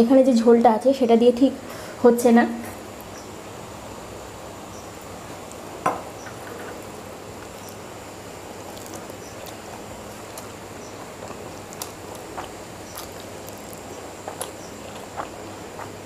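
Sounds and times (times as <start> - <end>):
steady hiss: 0.0 - 16.0
soft chewing with mouth clicks: 8.6 - 16.0.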